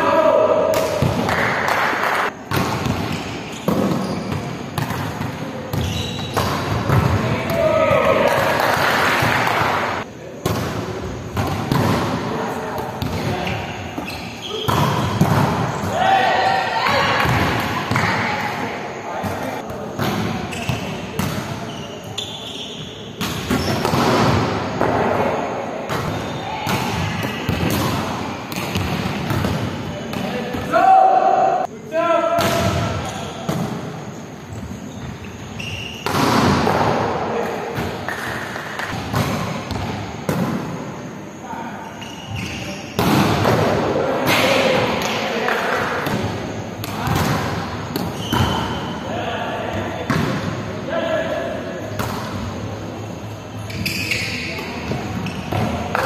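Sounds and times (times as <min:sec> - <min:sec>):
volleyball hits: 0:00.7 - 0:12.2, 0:25.9 - 0:30.6
volleyball slaps and thuds echoing: 0:00.7 - 0:16.0, 0:16.9 - 0:18.6, 0:19.2 - 0:21.6, 0:23.2 - 0:30.7, 0:32.4 - 0:34.1, 0:36.0 - 0:40.8, 0:43.0 - 0:48.8, 0:50.0 - 0:50.6, 0:51.9 - 0:52.5, 0:54.8 - 0:56.0.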